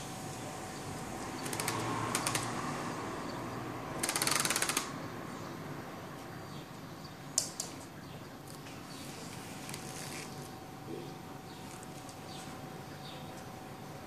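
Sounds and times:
kitten claws clicking on floor: 1.4s - 2.6s.

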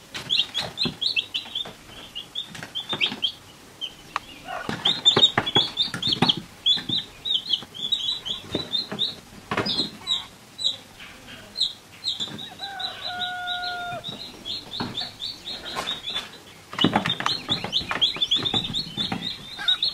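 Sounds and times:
chicks peeping: 0.0s - 19.9s.

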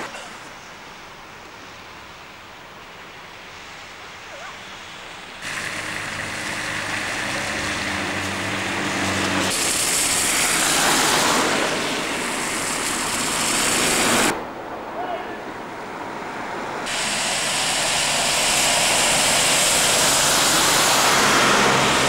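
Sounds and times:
car tyres hissing on wet road: 0.0s - 14.4s, 15.8s - 22.0s
lorry engine driving past: 15.6s - 22.0s.

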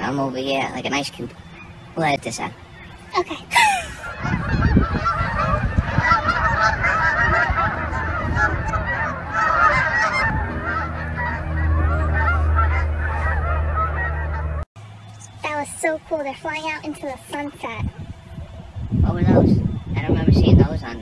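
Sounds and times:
geese honking: 0.0s - 14.6s.

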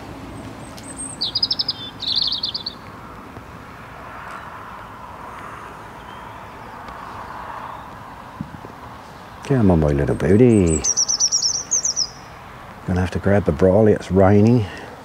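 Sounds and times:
songbird singing high notes: 0.6s - 2.8s, 9.7s - 12.4s.

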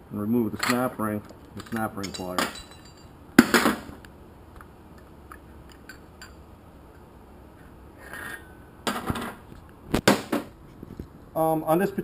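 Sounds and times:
metal parts clattering: 0.6s - 0.9s, 1.6s - 3.8s
metal parts clinking: 0.6s - 1.0s, 1.6s - 3.2s.

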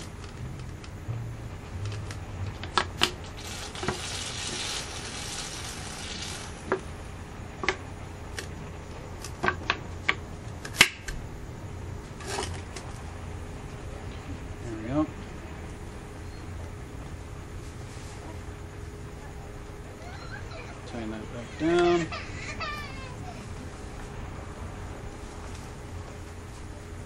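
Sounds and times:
faint low hum: 0.0s - 27.0s
hiss: 3.3s - 6.7s.

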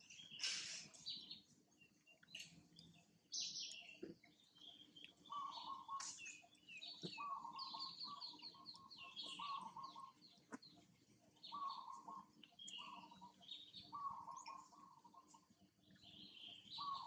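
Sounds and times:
falling bird chirps: 0.0s - 1.5s.

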